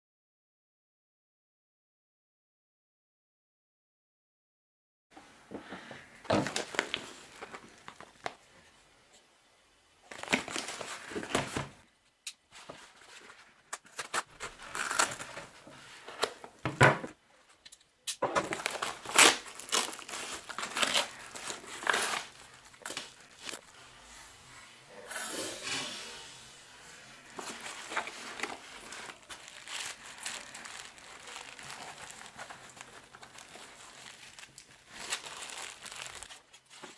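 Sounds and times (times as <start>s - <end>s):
padded envelope crinkling and tearing: 6.4s - 8.4s, 10.1s - 11.7s, 13.0s - 16.4s, 18.4s - 23.8s, 27.3s - 36.9s.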